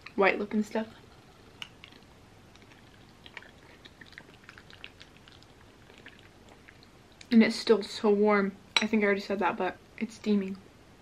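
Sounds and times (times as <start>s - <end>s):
person chewing food: 1.0s - 7.3s.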